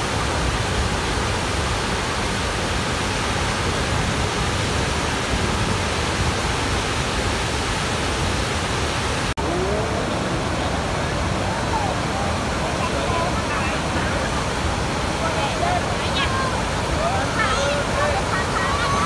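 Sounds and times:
waterfall roaring over rocks: 0:00.0 - 0:19.0.

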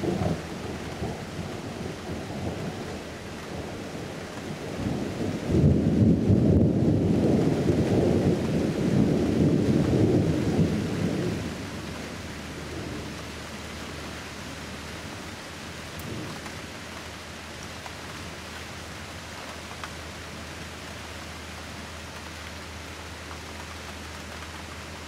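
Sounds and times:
rolling thunder: 0:00.0 - 0:03.0, 0:03.6 - 0:13.1
rain hissing: 0:00.0 - 0:25.0.

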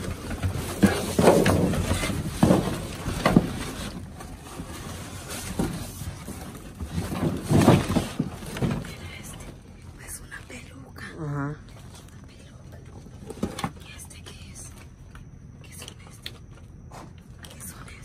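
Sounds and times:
plastic bags rustling: 0:00.0 - 0:09.0.

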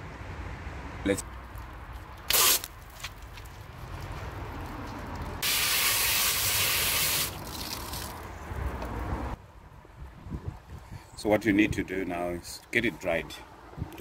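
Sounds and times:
hose water spraying on plastic: 0:05.4 - 0:08.1.

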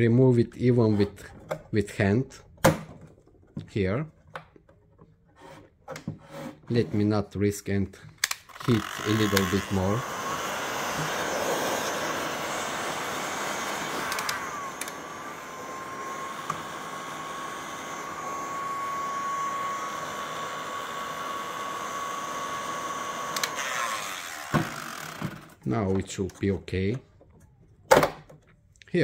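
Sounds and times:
hot-air blower hissing with faint whine: 0:08.7 - 0:24.4.

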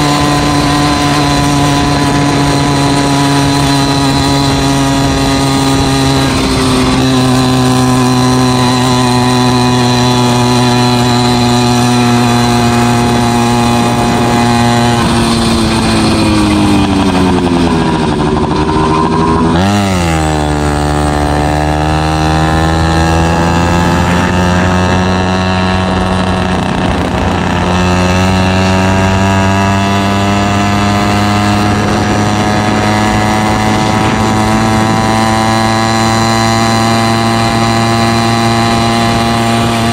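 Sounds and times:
motorized bicycle engine: 0:00.0 - 0:39.9.

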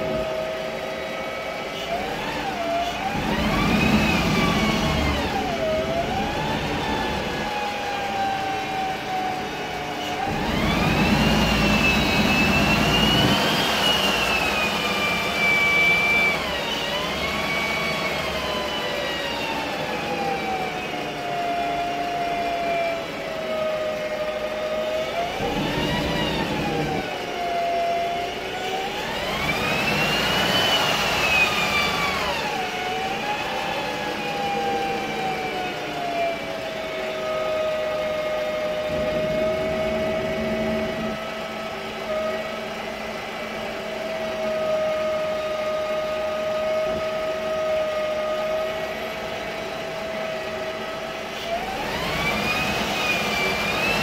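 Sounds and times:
bus engine running: 0:00.0 - 0:54.0
bus gearbox whining: 0:25.3 - 0:27.1.

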